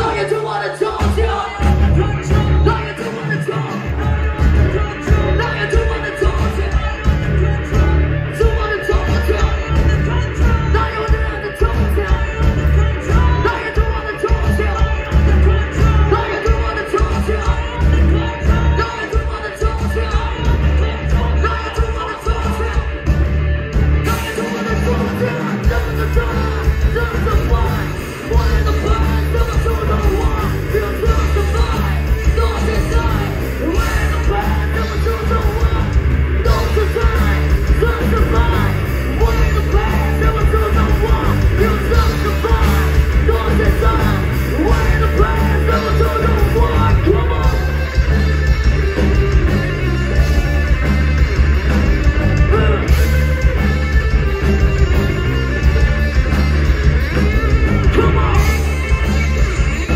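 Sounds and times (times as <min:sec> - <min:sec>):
person singing: 0:00.0 - 0:23.1, 0:24.0 - 0:59.9
live rock band playing: 0:00.0 - 0:59.9.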